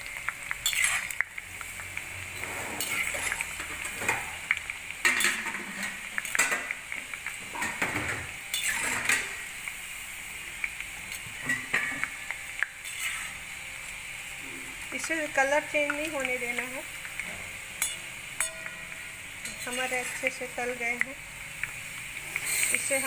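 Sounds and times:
snacks sizzling in hot oil: 0.0s - 23.0s
metal skimmer scraping a pan: 0.6s - 1.2s, 2.1s - 6.6s, 7.5s - 9.4s, 12.8s - 13.4s, 17.2s - 21.0s, 22.2s - 23.0s.

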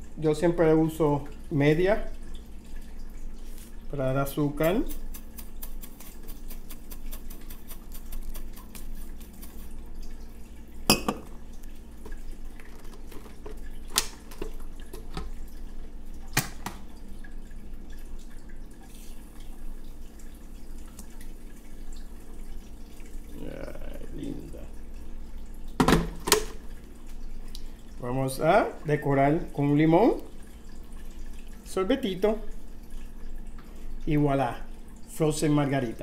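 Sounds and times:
glassware knocking on counter: 10.9s - 11.3s.

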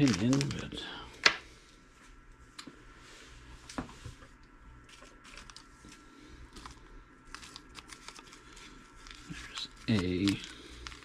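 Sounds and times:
plastic bag rustling: 0.0s - 0.8s, 4.8s - 11.0s.

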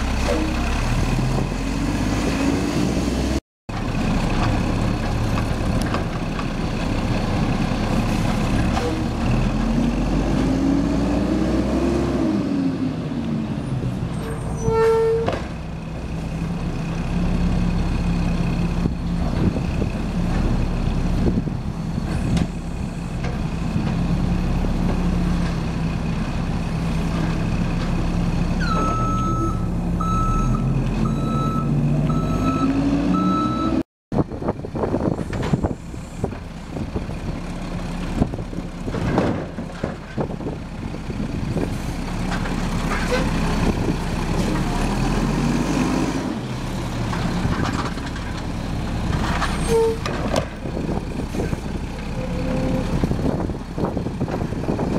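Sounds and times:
garbage truck diesel engine: 0.0s - 54.9s
reversing alarm beeping: 28.6s - 33.8s
short tone: 28.6s - 33.8s.

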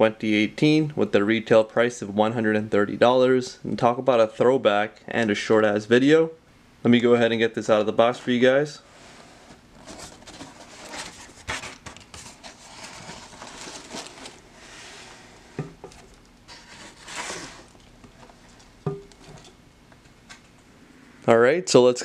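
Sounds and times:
cardboard box scraping and rustling: 8.9s - 17.8s.

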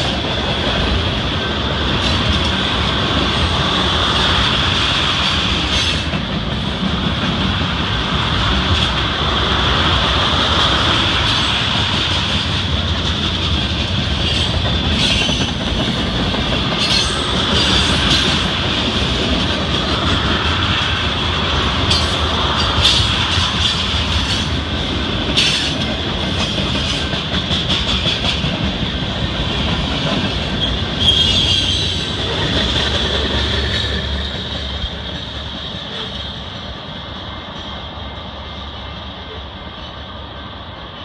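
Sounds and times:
steel wheels rumbling on rail: 0.0s - 41.0s
high wheel squeal: 30.6s - 32.5s.

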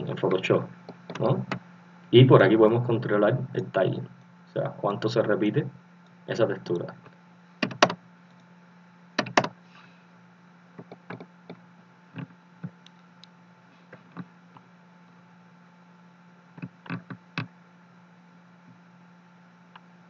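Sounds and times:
low steady hum: 0.0s - 20.0s
keyboard and mouse clicks: 7.6s - 8.5s, 9.2s - 9.6s.

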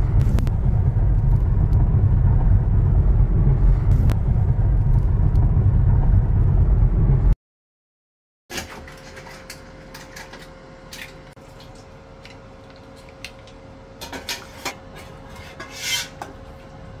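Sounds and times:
faint hum: 0.0s - 7.4s.

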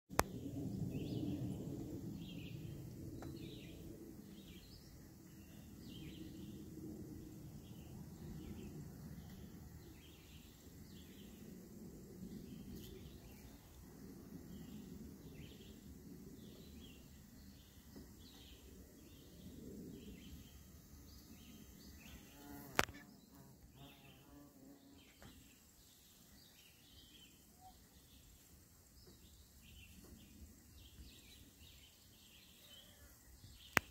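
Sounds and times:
low uneven rumble: 0.2s - 22.1s
sharp click: 22.7s - 23.0s.

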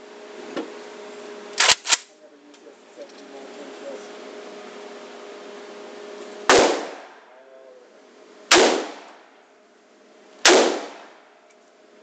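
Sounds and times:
rifle shots echoing indoors: 8.5s - 9.2s, 10.4s - 11.2s.

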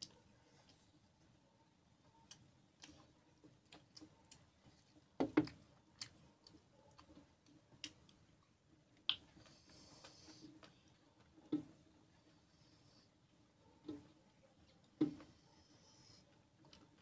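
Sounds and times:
chewing smacks: 2.1s - 11.6s.

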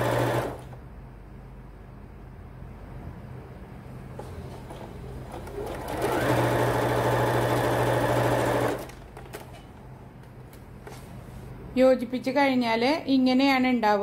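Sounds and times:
sewing machine stitching: 0.0s - 0.7s, 4.2s - 9.0s.

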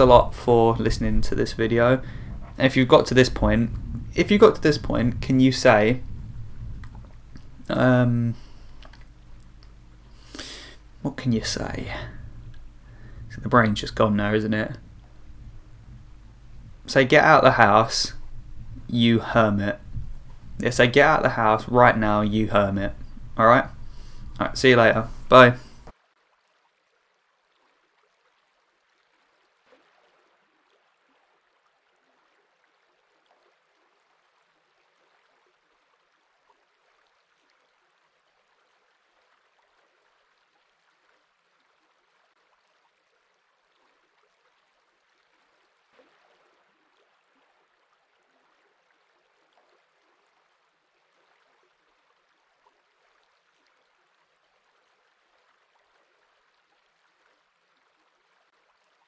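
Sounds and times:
flowing water: 0.0s - 59.0s
small water splash: 25.0s - 59.0s.

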